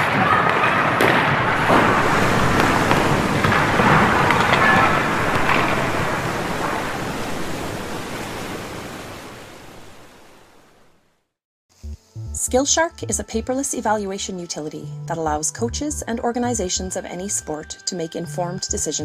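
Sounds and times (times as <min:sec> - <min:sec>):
rushing din of sports drills: 0:00.0 - 0:08.7.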